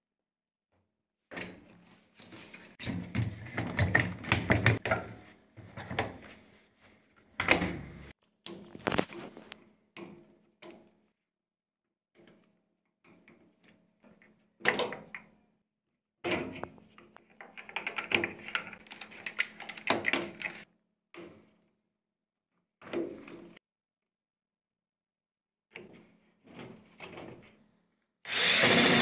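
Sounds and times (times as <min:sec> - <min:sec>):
plastic parts clicking and rattling: 0:17.1 - 0:20.7.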